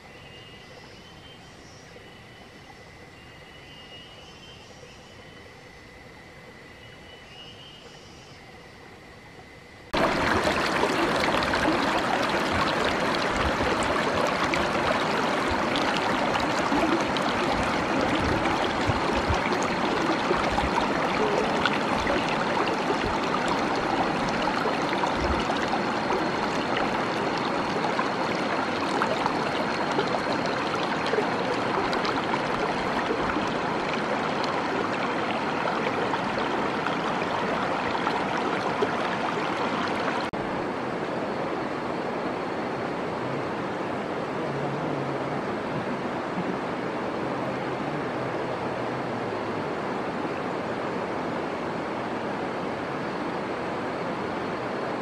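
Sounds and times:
river flowing over rocks: 10.0 - 41.0.

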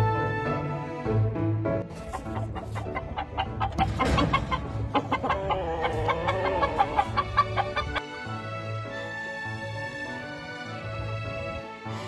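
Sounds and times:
background music: 0.0 - 12.0
chickens clucking: 1.9 - 8.0.

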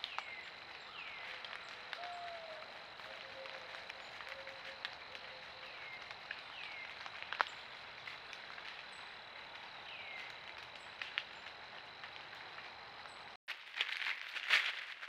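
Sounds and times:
light ticks: 1.3 - 13.2.

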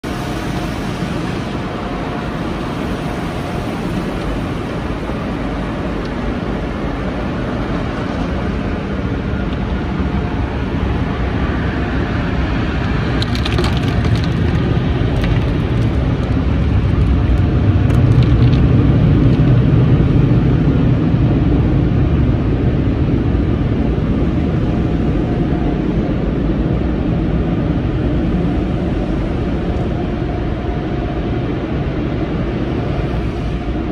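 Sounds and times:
low rumble: 8.4 - 33.9.

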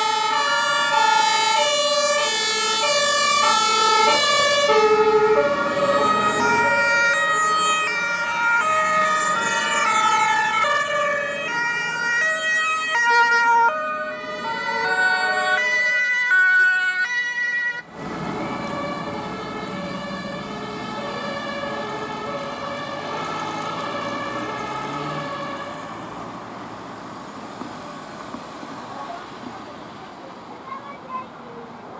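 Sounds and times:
two-tone sirens: 0.0 - 28.7
passing vehicles: 0.0 - 31.9.

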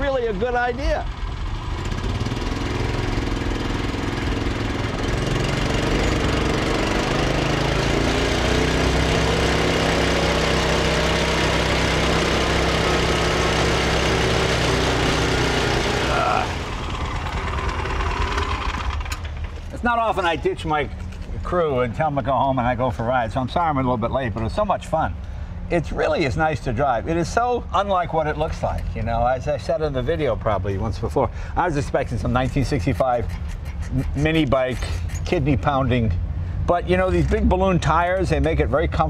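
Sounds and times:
motorcycle engine running: 0.2 - 20.4.

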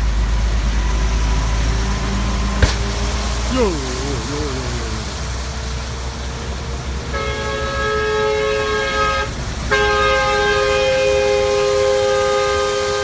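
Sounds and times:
vehicle horn blasts: 7.1 - 13.0.

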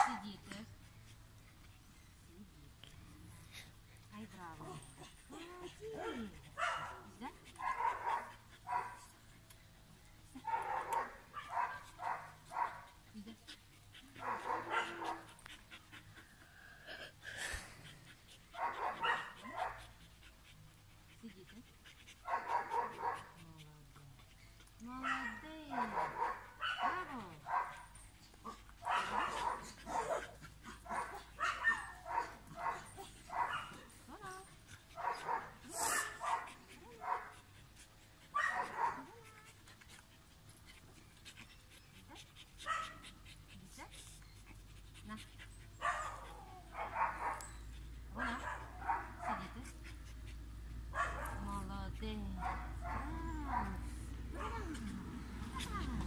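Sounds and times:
dog panting: 0.0 - 56.0
dog barking: 6.6 - 7.0, 7.6 - 9.0, 14.2 - 15.2, 18.6 - 19.8, 22.3 - 23.2, 25.0 - 27.8, 28.8 - 30.2, 30.9 - 33.7, 38.4 - 39.0, 45.8 - 47.4, 48.2 - 49.4, 51.0 - 51.4, 52.4 - 53.6.

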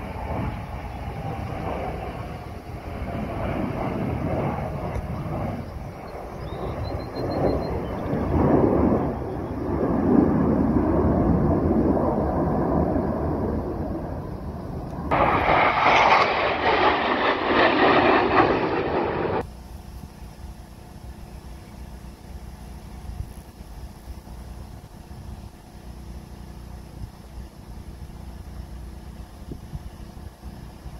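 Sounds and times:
jets flying overhead: 0.0 - 22.5
faint steady rumble: 0.0 - 30.9.

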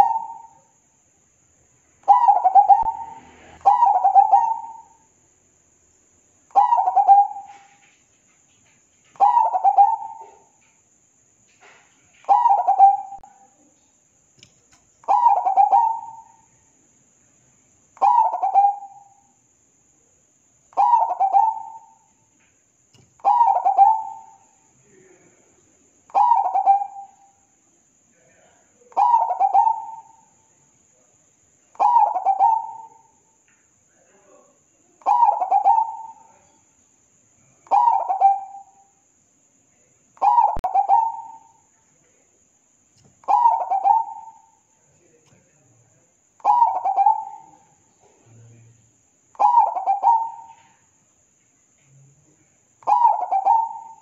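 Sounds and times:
dove cooing: 0.0 - 0.5, 2.1 - 5.0, 6.6 - 7.8, 9.2 - 10.6, 12.2 - 13.4, 15.0 - 16.4, 18.0 - 19.0, 20.8 - 22.0, 23.2 - 24.4, 26.1 - 27.1, 29.0 - 30.2, 31.8 - 33.0, 35.0 - 36.5, 37.7 - 38.7, 40.2 - 41.6, 43.2 - 44.6, 46.4 - 48.2, 49.4 - 50.8, 52.8 - 54.0.

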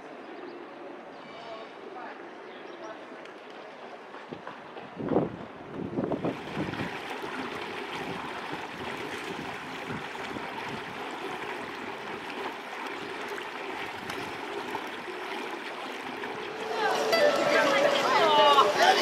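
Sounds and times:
fountain water splashing: 6.1 - 19.0.

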